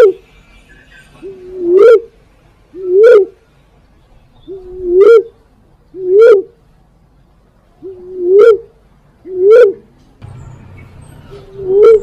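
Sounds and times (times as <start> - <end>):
dove hooting coos: 0.0 - 0.2, 1.2 - 3.4, 4.5 - 6.6, 7.8 - 9.9, 11.3 - 12.0.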